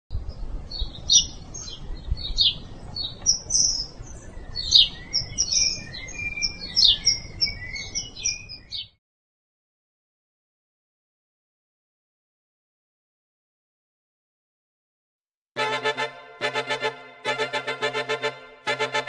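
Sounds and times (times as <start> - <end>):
birds chirping: 0.3 - 9.0.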